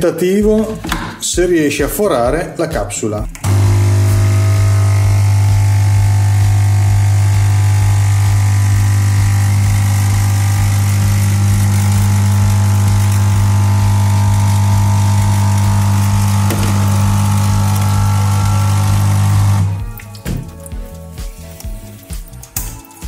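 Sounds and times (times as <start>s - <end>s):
espresso machine pump buzzing: 3.4s - 19.8s.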